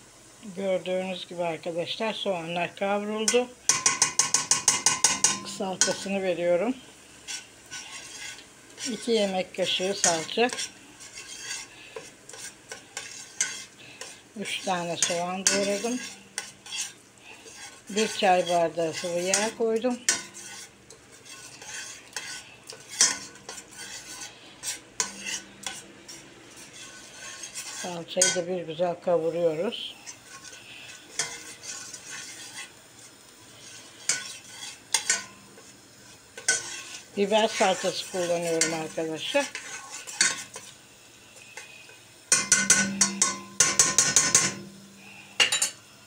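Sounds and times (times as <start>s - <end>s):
light sizzle: 0.0s - 46.0s
spoon scraping a metal pot: 3.3s - 6.2s, 7.3s - 9.1s, 9.7s - 28.4s, 30.0s - 30.6s, 31.2s - 32.7s, 33.6s - 35.3s, 36.4s - 40.7s, 42.3s - 45.7s.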